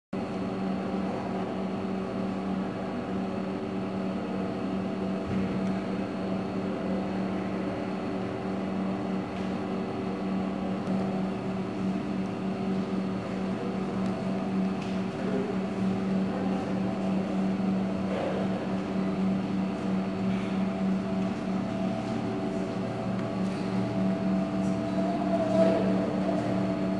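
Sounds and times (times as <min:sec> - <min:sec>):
low mechanical hum: 0:00.2 - 0:26.9.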